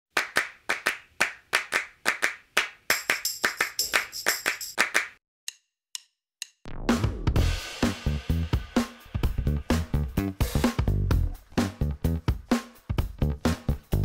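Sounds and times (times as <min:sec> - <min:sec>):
rhythmic hand claps: 0:00.1 - 0:05.2
drum kit music: 0:02.9 - 0:04.8, 0:06.7 - 0:14.0.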